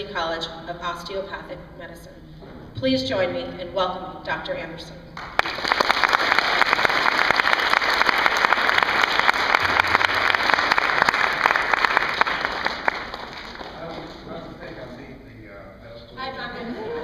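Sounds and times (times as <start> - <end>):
audience applauding: 5.2 - 14.3.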